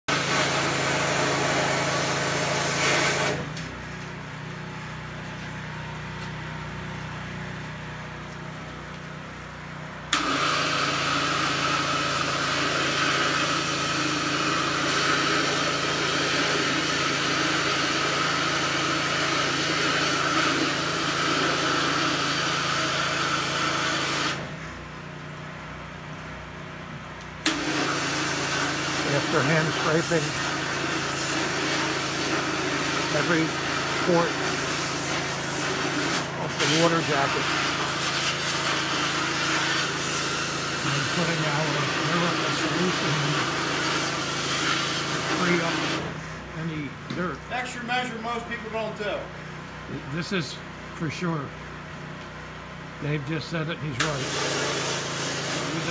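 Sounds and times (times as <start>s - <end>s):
pressure washer pump humming: 0.0s - 55.9s
water spray hissing: 27.4s - 46.4s, 54.0s - 55.9s.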